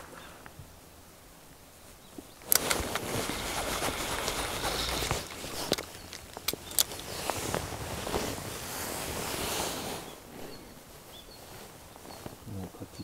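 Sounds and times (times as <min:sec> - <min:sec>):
handling clicks and knocks: 0:02.4 - 0:08.3.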